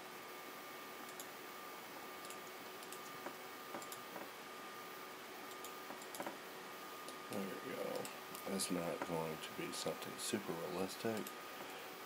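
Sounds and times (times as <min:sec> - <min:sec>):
faint steady whine: 0:00.0 - 0:12.0
microphone hiss: 0:00.0 - 0:12.0
keyboard and mouse clicks: 0:02.2 - 0:04.3, 0:05.5 - 0:06.4.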